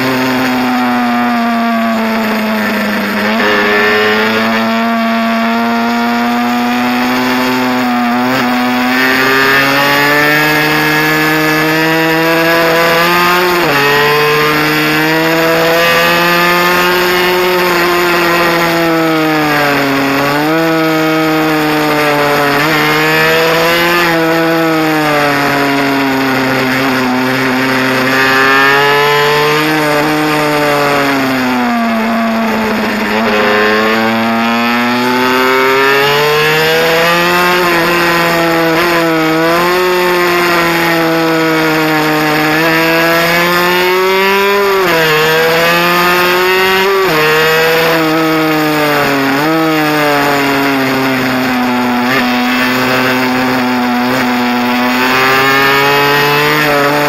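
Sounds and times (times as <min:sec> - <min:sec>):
two-stroke engine revving: 0:00.0 - 0:57.0.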